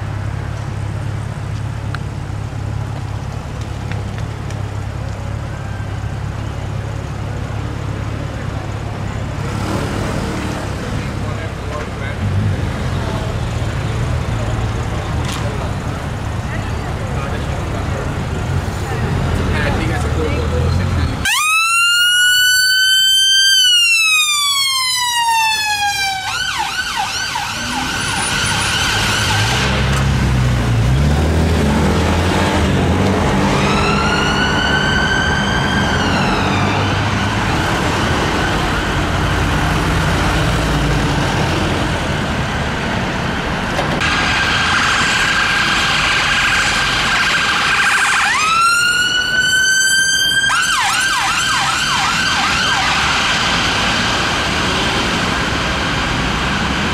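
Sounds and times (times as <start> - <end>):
ambulance engine rumble: 0.0 - 56.9
traffic noise: 0.0 - 56.9
ambulance siren wailing and yelping: 21.2 - 29.6, 33.5 - 37.4, 44.2 - 54.1
second siren: 21.2 - 29.7, 33.5 - 37.3, 44.1 - 54.0.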